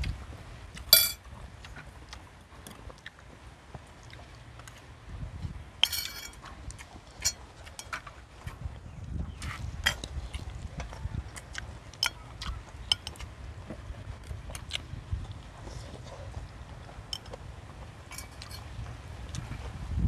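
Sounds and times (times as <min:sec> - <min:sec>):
chopsticks and tongs tapping dishes: 0:00.9 - 0:01.2, 0:05.8 - 0:06.4, 0:07.2 - 0:08.0, 0:12.0 - 0:12.2, 0:12.8 - 0:13.2, 0:17.1 - 0:17.4, 0:18.1 - 0:18.7
tableware and metal utensils clinking: 0:00.9 - 0:01.2, 0:05.8 - 0:06.4, 0:07.1 - 0:08.0, 0:12.0 - 0:12.2, 0:12.9 - 0:13.2, 0:17.1 - 0:17.4, 0:18.1 - 0:18.7.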